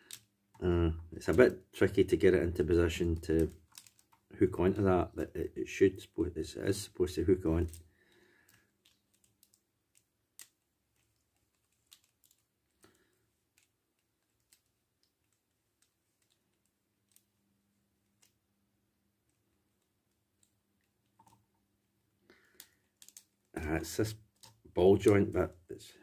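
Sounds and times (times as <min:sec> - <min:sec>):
plastic toy parts clicking: 0:00.0 - 0:00.6, 0:03.0 - 0:04.3, 0:08.5 - 0:12.9, 0:13.5 - 0:17.3, 0:22.5 - 0:23.5, 0:24.3 - 0:25.4.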